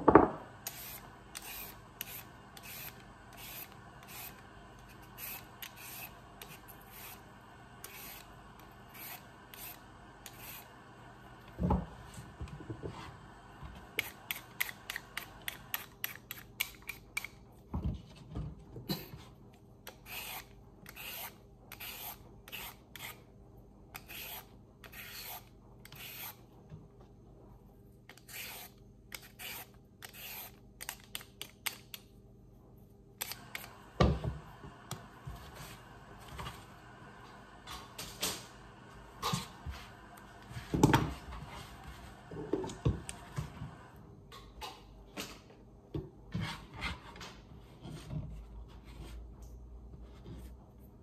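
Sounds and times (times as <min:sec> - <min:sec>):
vegetable peeler scraping carrot: 0:00.6 - 0:10.7, 0:19.8 - 0:23.3, 0:23.9 - 0:26.4, 0:28.1 - 0:31.8.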